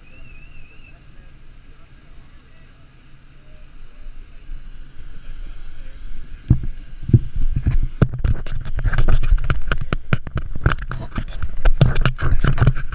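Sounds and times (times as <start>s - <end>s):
dense irregular crackling and knocking: 6.4s - 12.9s.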